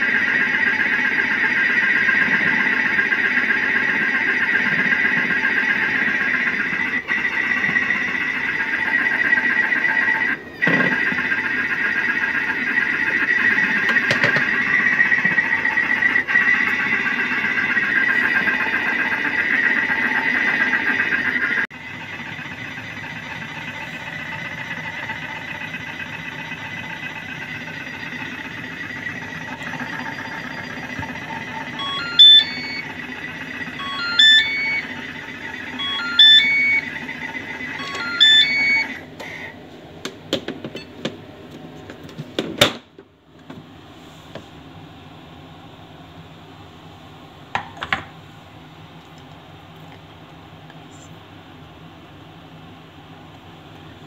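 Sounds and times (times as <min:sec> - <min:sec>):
food processor running: 0:00.0 - 0:40.4
timer beep sequences: 0:29.4 - 0:39.0.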